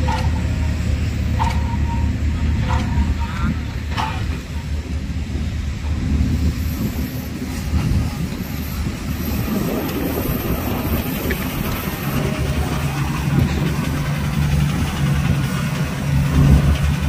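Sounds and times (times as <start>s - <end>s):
heavy diesel engines droning: 0.0s - 17.0s
second steady engine note: 0.0s - 17.0s.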